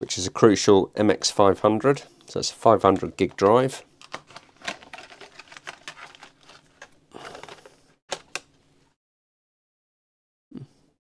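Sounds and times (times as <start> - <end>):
packaging rustling: 2.9 - 8.4
plastic packaging clicking and crackling: 2.9 - 8.5.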